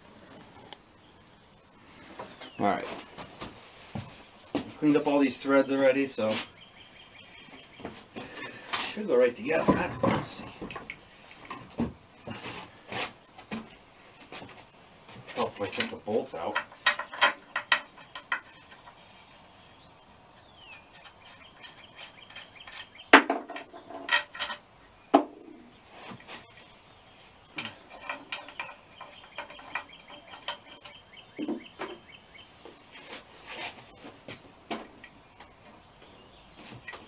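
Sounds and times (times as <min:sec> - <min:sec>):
metal tools clinking and knocking: 0:08.4 - 0:12.4, 0:15.5 - 0:19.0, 0:20.9 - 0:24.6, 0:27.5 - 0:32.0.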